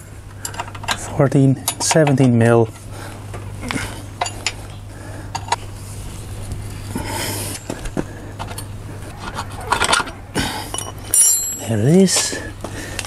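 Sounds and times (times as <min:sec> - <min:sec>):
spanner scraping rattle: 0:07.4 - 0:12.4
spanner clinking on metal: 0:09.7 - 0:12.3.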